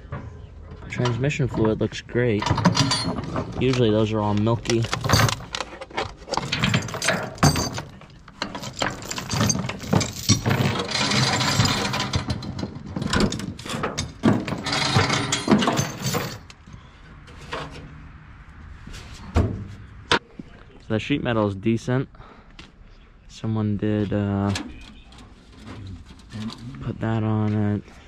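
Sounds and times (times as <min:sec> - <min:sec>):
metal clanks and knocks: 0:00.0 - 0:16.6, 0:17.3 - 0:17.9, 0:19.3 - 0:20.2
metal scraping: 0:00.8 - 0:16.6, 0:17.2 - 0:18.1.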